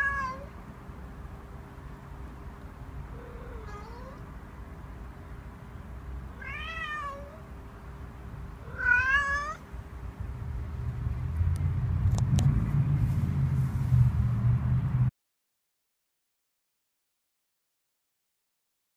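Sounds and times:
cat meowing: 0.0 - 0.5, 3.1 - 4.2, 6.4 - 7.5, 8.6 - 9.6
low rumble: 9.9 - 15.1.

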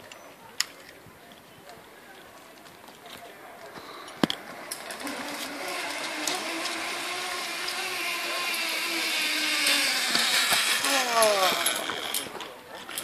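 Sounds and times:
zip-line trolley whirring on cable: 4.4 - 13.0.

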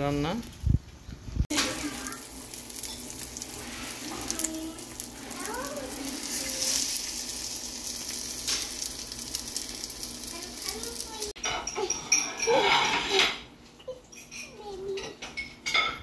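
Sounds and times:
omelette sizzling in a pan: 1.4 - 11.4
spatula pushing food in pan: 1.6 - 11.2.

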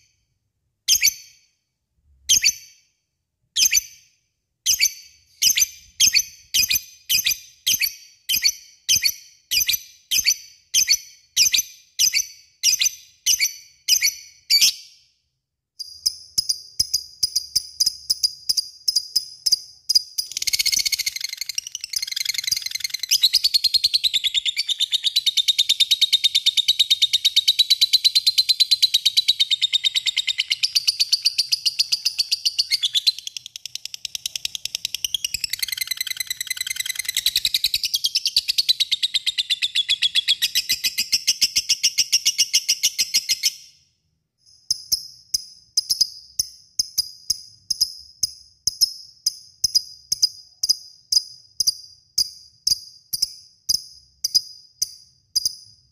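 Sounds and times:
lovebird sharp chirps: 0.9 - 1.5, 2.3 - 2.9, 3.6 - 4.1, 4.7 - 15.0, 15.8 - 43.8
lovebird chattering trill: 20.2 - 37.8.

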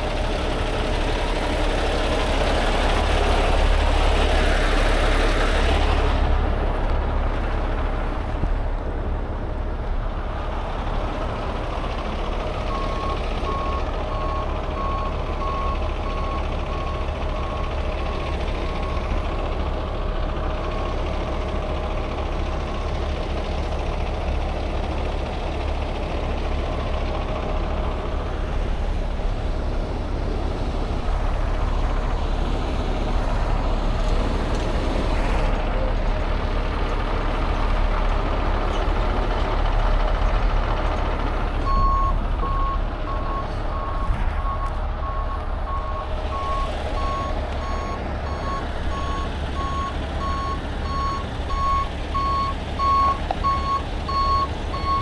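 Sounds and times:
diesel truck engine rumbling: 0.0 - 55.0
truck backup alarm beeping: 12.5 - 19.8, 26.3 - 27.8, 41.5 - 55.0.

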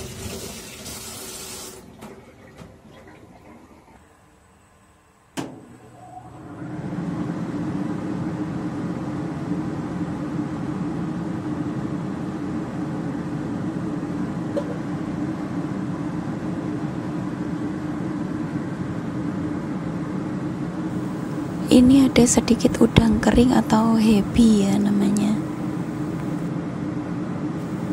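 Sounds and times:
extractor fan running: 3.5 - 27.9.

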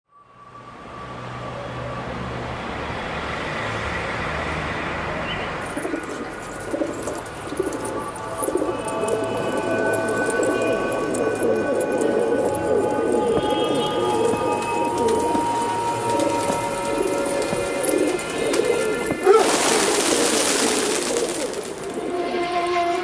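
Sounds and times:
birds cooing: 5.6 - 22.8
steady held tones: 6.6 - 19.4.

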